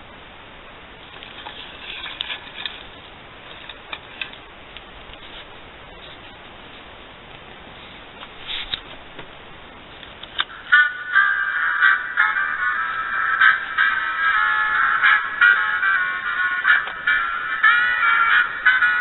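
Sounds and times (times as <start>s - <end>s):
rustling of tree branches: 0.0s - 19.0s
ornaments clicking: 10.1s - 12.0s.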